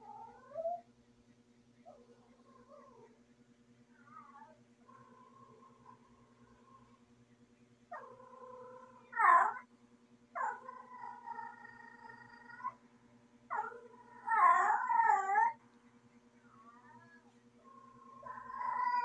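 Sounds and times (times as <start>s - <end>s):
cat yowling: 16.6s - 19.0s.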